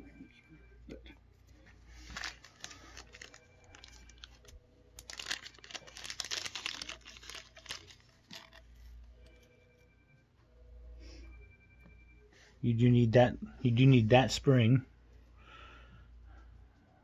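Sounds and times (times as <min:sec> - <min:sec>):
plastic packaging crinkling and tearing: 0:02.0 - 0:08.8.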